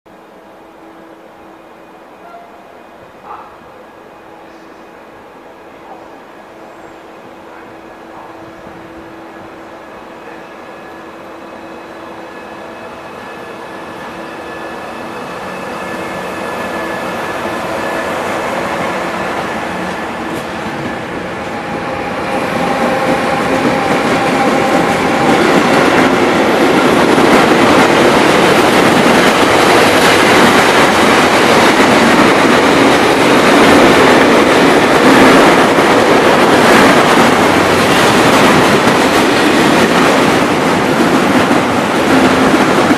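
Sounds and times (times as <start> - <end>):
electric locomotive humming: 0.1 - 42.9
train wheels clacking on rails: 11.6 - 42.9.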